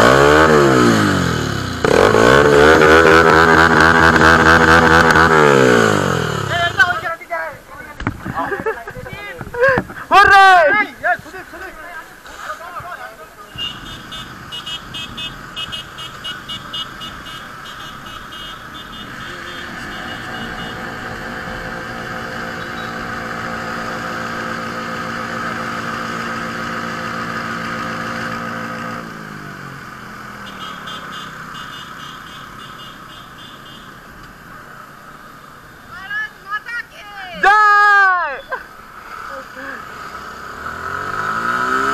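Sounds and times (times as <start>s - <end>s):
motorcycle engine accelerating: 0.0s - 7.0s, 19.0s - 32.7s, 38.9s - 41.9s
wind and road noise: 0.0s - 41.9s.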